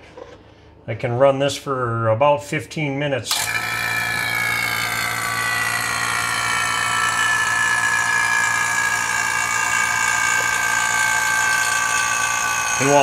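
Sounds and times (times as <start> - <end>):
vacuum pump droning with whine: 3.3 - 13.0.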